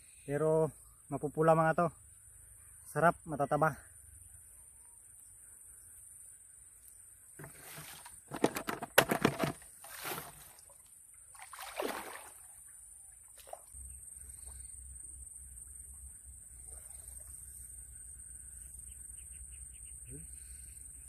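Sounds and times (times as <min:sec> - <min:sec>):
water sloshing: 0:09.0 - 0:12.6.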